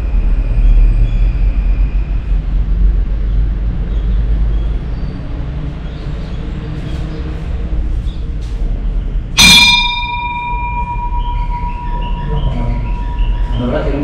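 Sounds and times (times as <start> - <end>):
low rumble: 9.4 - 14.0
temple bell ringing: 9.4 - 14.0.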